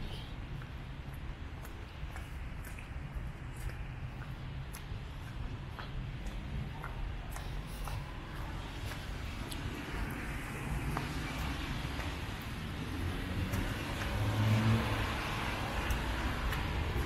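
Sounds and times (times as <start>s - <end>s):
light rain and drips: 0.0s - 17.0s
tyres hissing on wet road: 9.6s - 16.9s.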